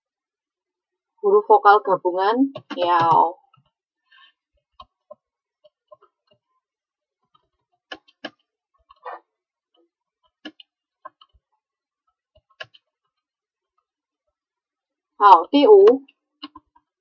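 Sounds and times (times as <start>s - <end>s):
computer keyboard and mouse clicks: 7.3s - 9.0s, 10.3s - 11.4s, 12.4s - 13.2s, 16.0s - 16.9s.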